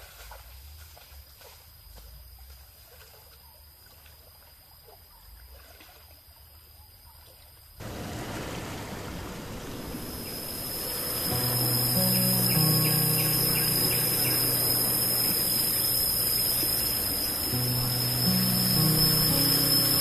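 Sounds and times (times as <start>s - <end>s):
high hiss: 7.8s - 20.0s
stream water flowing: 7.8s - 20.0s.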